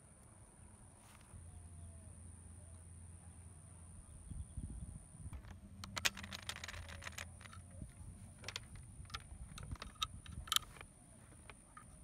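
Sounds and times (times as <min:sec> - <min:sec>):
metal clicks of tools and wires: 0:08.4 - 0:11.9.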